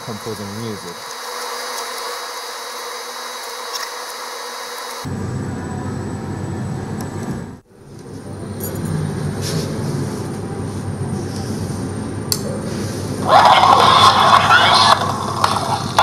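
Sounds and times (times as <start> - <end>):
toy record player rumbling: 13.2 - 16.0.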